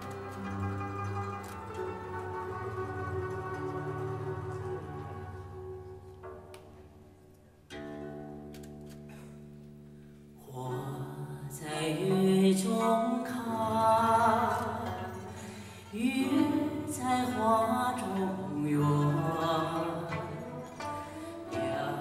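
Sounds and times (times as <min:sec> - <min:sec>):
woman singing with vibrato: 0:10.4 - 0:22.0.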